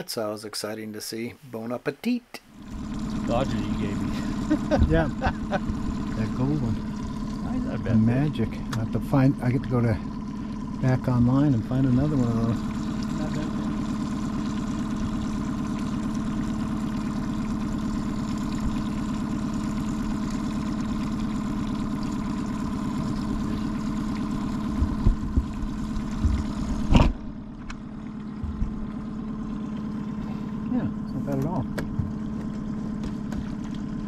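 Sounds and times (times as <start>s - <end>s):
boat motor humming: 2.4s - 34.0s
low thumps: 4.7s - 6.2s, 24.7s - 27.5s, 28.3s - 29.0s.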